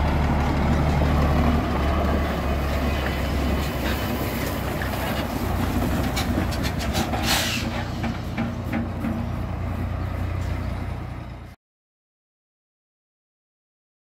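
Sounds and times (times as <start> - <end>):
diesel truck engine rumbling: 0.0 - 11.6
short hiss: 7.2 - 7.8.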